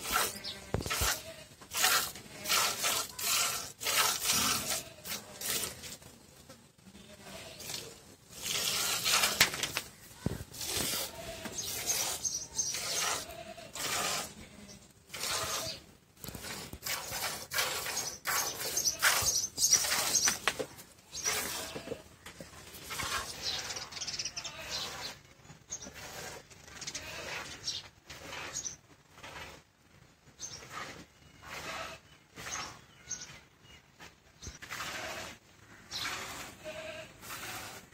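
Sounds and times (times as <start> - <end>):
milk squirting into bucket: 7.6 - 9.8.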